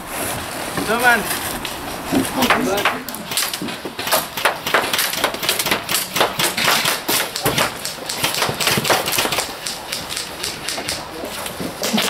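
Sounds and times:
pellets striking wooden boards: 2.1 - 12.0
airsoft gunfire: 3.3 - 11.1.

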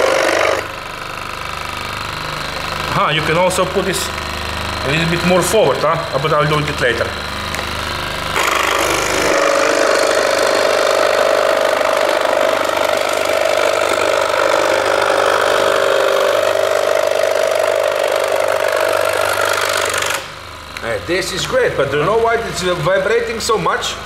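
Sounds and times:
scroll saw cutting wood: 0.0 - 1.0, 8.2 - 20.3.

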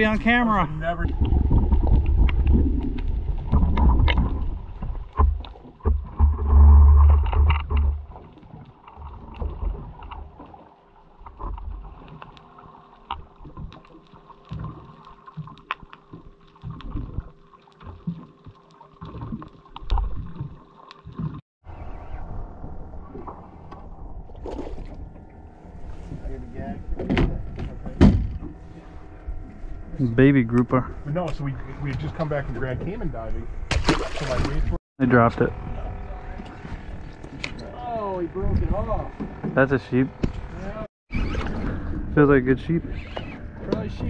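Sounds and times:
muffled underwater rumble: 0.0 - 44.0.

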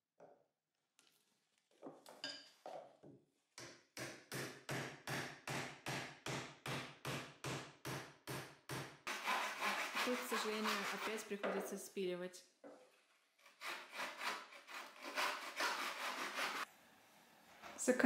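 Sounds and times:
hammer striking chisel: 3.6 - 10.0.

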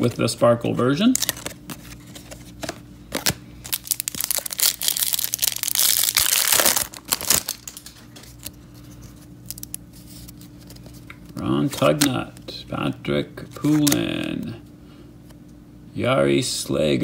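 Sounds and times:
foil wrapper crinkling torn open: 1.0 - 1.6, 3.1 - 10.5, 13.6 - 14.1
cards handling clicks: 1.2 - 8.6, 11.0 - 12.5, 13.5 - 14.2.

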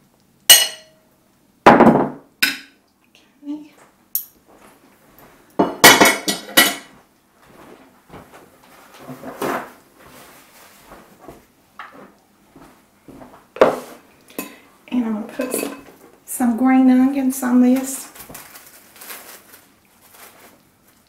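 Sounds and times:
dishes and utensils knocking: 0.5 - 1.0, 1.7 - 2.8, 5.6 - 6.9, 15.3 - 15.9
ceramic plates clattering: 5.6 - 6.9, 15.3 - 15.9.

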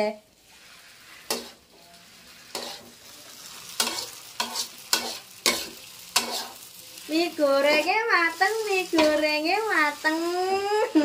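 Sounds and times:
noodles sizzling in a wok: 0.0 - 11.0
spatula scraping and knocking pan: 0.5 - 1.6, 2.5 - 3.0, 3.8 - 6.6, 8.8 - 9.2.

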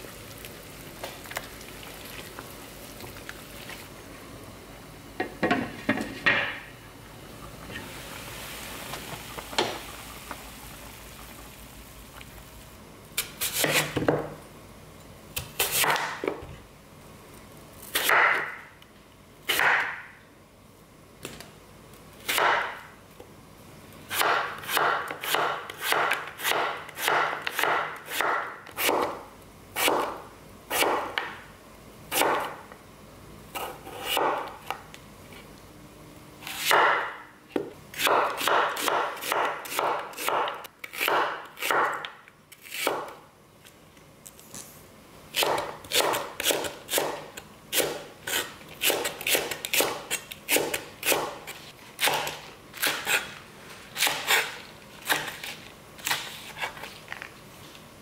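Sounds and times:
knife chopping on wooden board: 19.5 - 20.0, 22.3 - 22.8, 24.1 - 29.2, 29.8 - 31.4, 33.6 - 34.5, 36.6 - 42.1, 42.8 - 43.2, 45.4 - 53.3.

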